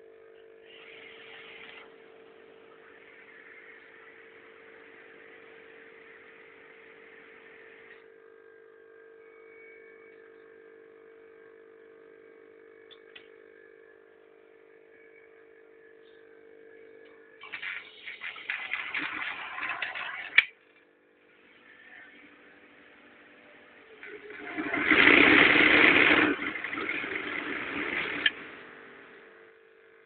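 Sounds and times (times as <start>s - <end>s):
electric motor hum: 0.0s - 30.0s
hiss: 0.6s - 1.8s.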